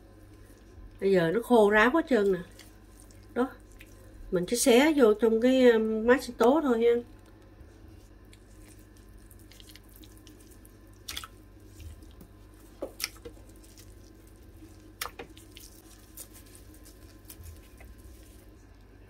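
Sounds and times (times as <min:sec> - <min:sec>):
steady low hum: 0:00.0 - 0:19.0
wet plops and drips: 0:09.2 - 0:16.4.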